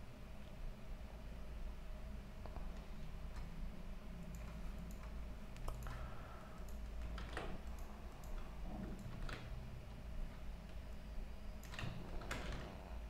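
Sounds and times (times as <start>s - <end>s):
low steady hum: 0.0s - 13.0s
computer mouse clicks: 4.2s - 9.6s.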